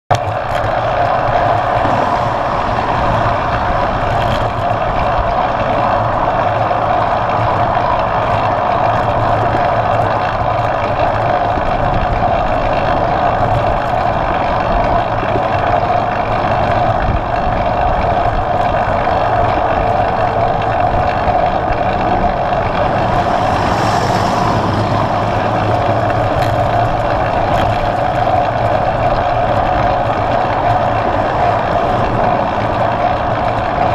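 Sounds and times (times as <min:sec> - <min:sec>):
wind and road noise: 0:00.1 - 0:33.9.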